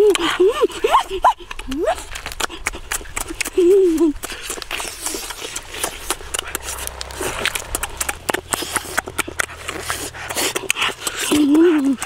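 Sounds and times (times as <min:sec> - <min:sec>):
person chewing and lip-smacking: 0:00.0 - 0:07.0, 0:07.9 - 0:12.0.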